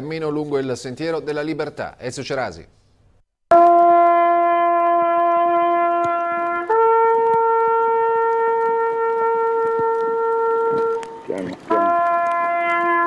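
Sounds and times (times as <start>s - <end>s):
solo trumpet call: 3.5s - 13.0s.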